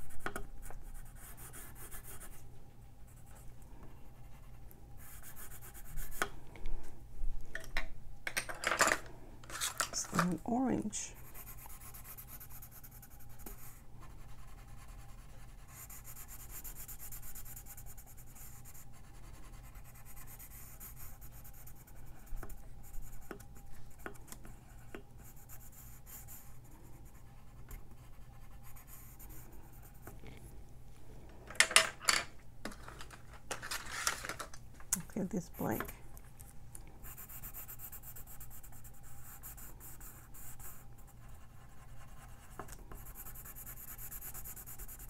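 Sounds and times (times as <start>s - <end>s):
pencil scratching on paper: 0.0s - 2.4s, 4.0s - 6.3s, 11.0s - 30.2s, 37.0s - 45.0s
pencils clicking and knocking: 7.5s - 10.5s, 31.5s - 35.1s.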